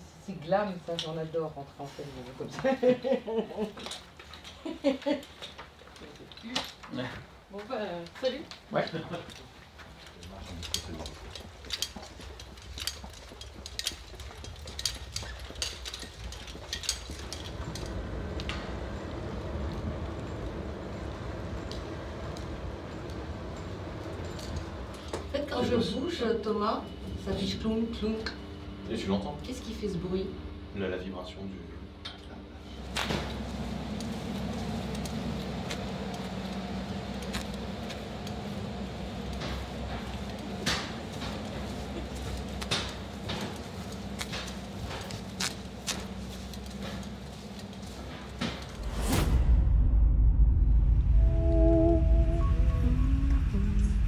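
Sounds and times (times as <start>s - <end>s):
low mechanical hum: 0.0s - 54.0s
light clicks and metallic jingles: 8.0s - 25.4s
electric cart rumbling: 8.9s - 28.2s, 32.7s - 49.1s, 50.8s - 54.0s.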